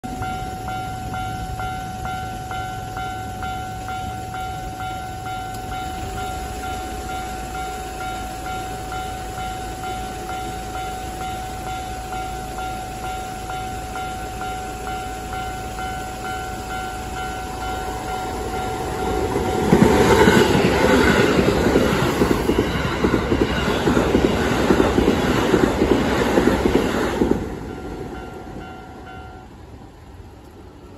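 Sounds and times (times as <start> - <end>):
level crossing alarm ringing: 0.0 - 29.6
train wheels clattering over joints: 17.5 - 28.6.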